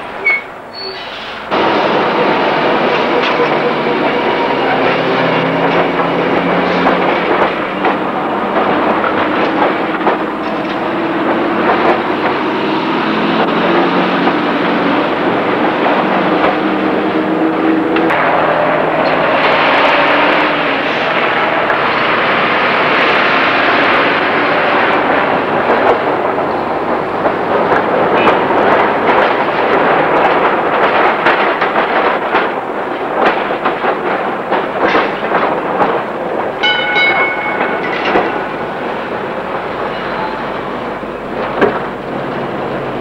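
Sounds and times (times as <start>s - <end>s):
tram rolling: 0.0s - 43.0s
tyre and road noise: 1.2s - 43.0s
cars passing: 3.5s - 29.0s.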